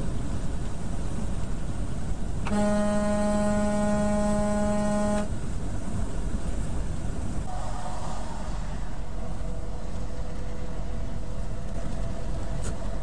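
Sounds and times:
truck road and engine rumble: 0.0s - 13.0s
vehicle horn steady note: 2.5s - 5.3s, 7.5s - 8.9s.

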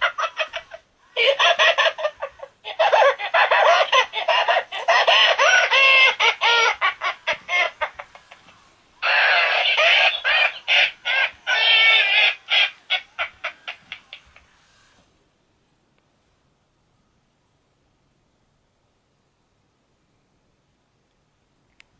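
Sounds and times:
toy cat chattering cries: 0.0s - 8.4s, 9.0s - 14.4s
toy rolling on floor: 0.0s - 15.0s.

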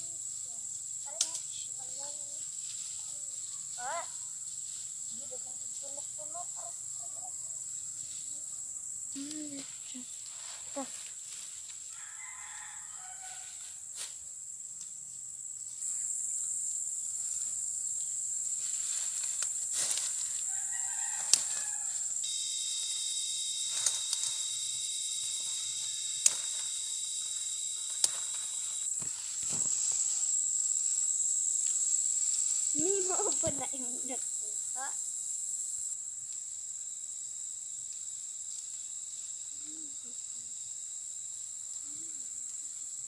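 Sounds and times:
high-pitched insect drone: 0.0s - 43.0s
whining insect chorus: 0.0s - 43.0s
fern stalks snapping: 21.2s - 21.8s, 23.7s - 24.4s, 26.1s - 26.8s, 27.8s - 29.8s.

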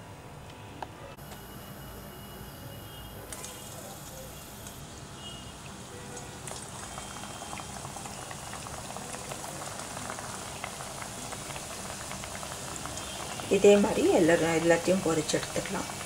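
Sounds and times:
hot oil sizzling and crackling: 3.3s - 16.0s.

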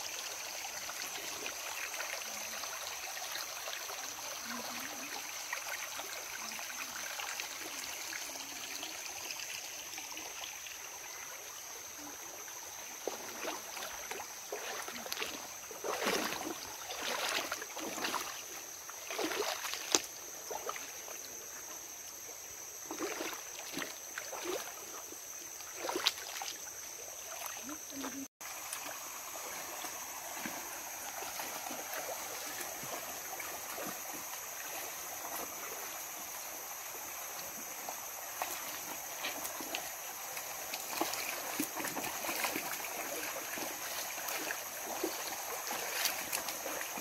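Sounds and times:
stream flowing over rocks: 0.0s - 21.3s, 25.6s - 47.0s
feet wading through water: 12.7s - 21.3s, 22.8s - 36.4s, 37.1s - 47.0s.

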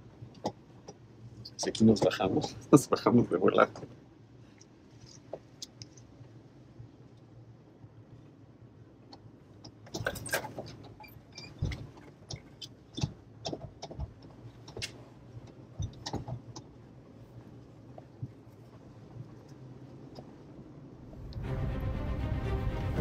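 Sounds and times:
body knocks and rattles: 9.8s - 19.5s
car engine humming: 21.0s - 23.0s.

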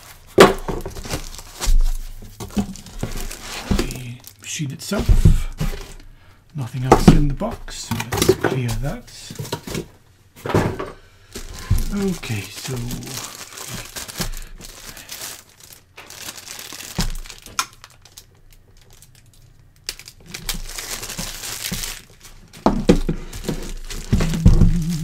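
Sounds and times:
plastic bag crinkling: 0.0s - 6.0s, 11.2s - 25.0s.

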